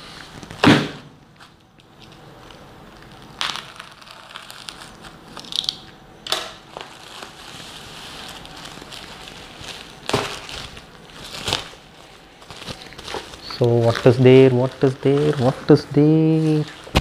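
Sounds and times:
plastic ripping: 1.8s - 15.7s
plastic mailer crinkling: 6.6s - 17.0s.

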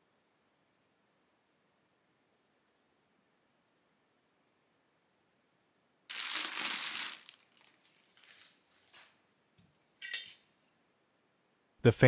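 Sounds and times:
plastic packaging crinkling: 6.1s - 9.2s.

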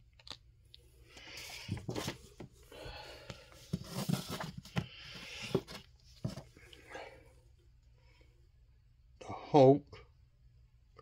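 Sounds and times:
paper rustling and sliding: 1.4s - 2.5s, 3.6s - 6.5s.

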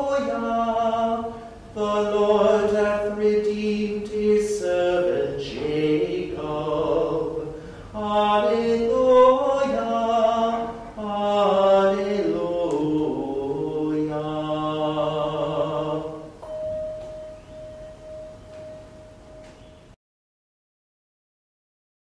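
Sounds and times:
man chanting: 0.0s - 16.4s.

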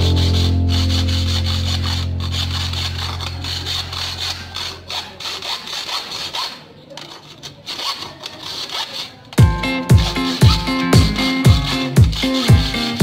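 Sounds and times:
background music with a beat: 0.0s - 2.7s, 9.4s - 13.0s
hacksaw cutting metal rod: 0.0s - 13.0s.

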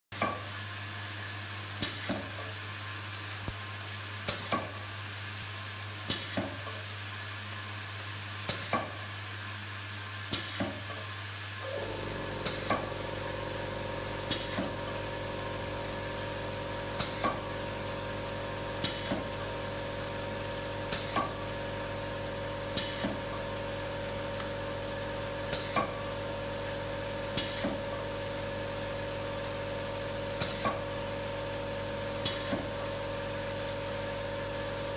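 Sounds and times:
machine electrical hum: 0.2s - 34.9s
higher-pitched steady hum: 11.6s - 27.3s.

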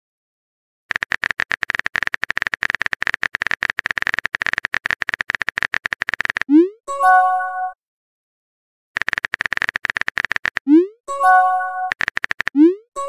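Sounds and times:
keyboard typing clicks: 0.9s - 6.6s, 9.0s - 11.0s, 11.8s - 12.9s.

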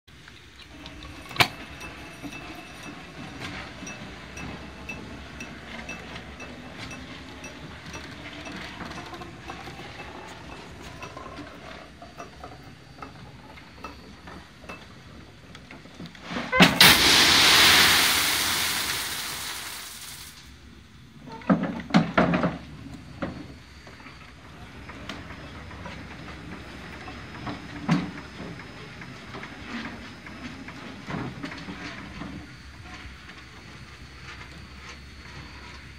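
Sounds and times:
winch and pulley whirring: 0.6s - 16.0s
water hissing and splashing: 16.6s - 20.4s.

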